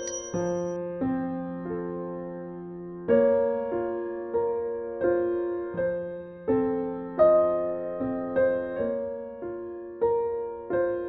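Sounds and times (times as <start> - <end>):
slow piano music: 0.0 - 11.0.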